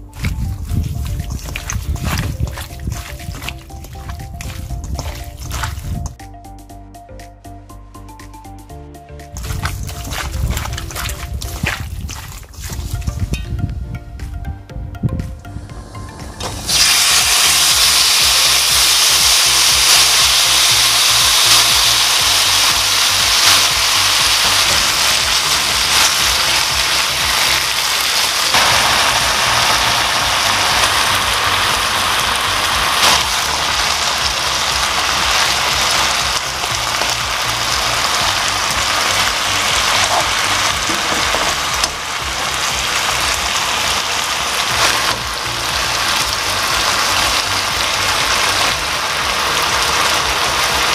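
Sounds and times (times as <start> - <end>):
meat sizzling in a frying pan: 0.0 - 6.1, 16.7 - 50.9.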